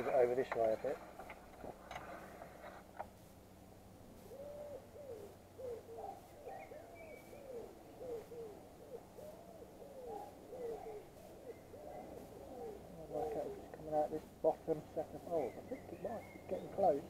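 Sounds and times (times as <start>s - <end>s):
high bird chirp: 15.3s - 17.0s.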